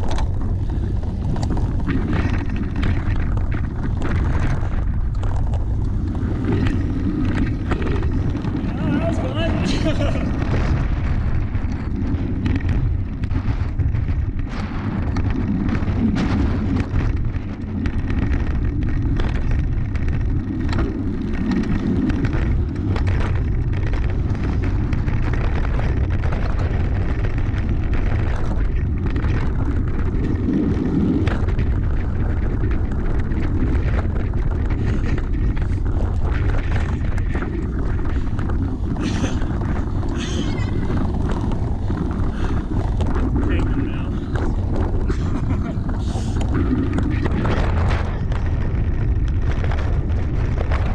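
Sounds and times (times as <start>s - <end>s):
bike clicks and rattles: 0.0s - 50.9s
wind buffeting microphone: 0.0s - 50.9s.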